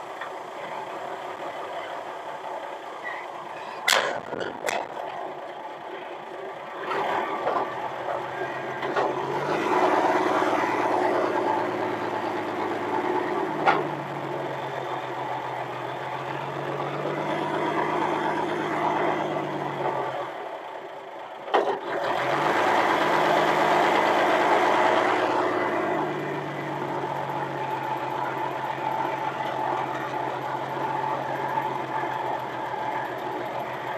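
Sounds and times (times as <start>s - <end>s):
forklift engine revving: 0.0s - 33.9s
sharp clacks: 3.7s - 5.2s.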